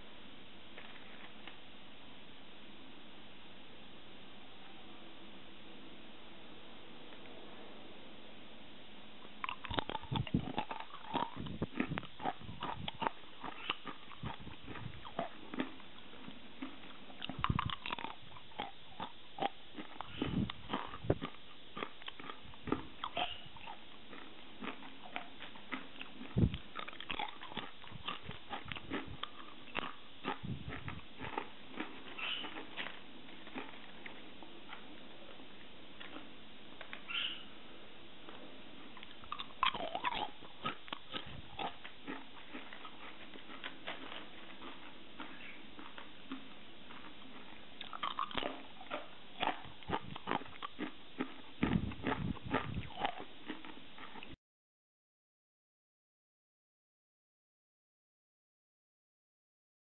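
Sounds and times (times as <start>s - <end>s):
crunching and chewing crackers: 9.2s - 37.1s, 38.2s - 54.4s.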